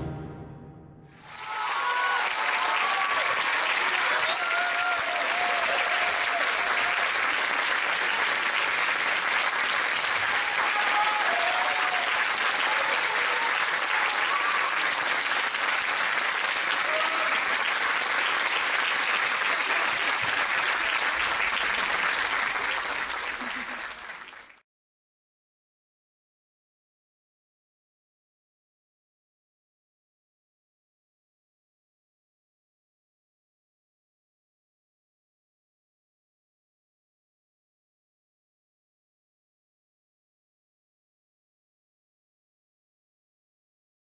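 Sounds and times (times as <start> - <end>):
audience applauding: 1.2 - 24.6.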